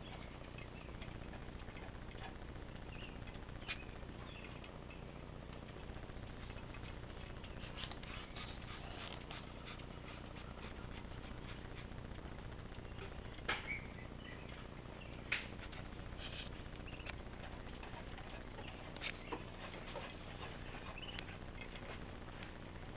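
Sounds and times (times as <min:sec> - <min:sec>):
ducklings peeping: 0:00.0 - 0:22.9.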